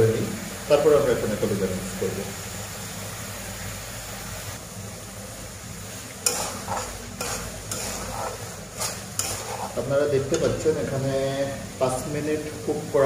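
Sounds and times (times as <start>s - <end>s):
curry sizzling in a wok: 0.0s - 13.0s
spatula scraping a pan: 6.2s - 10.6s.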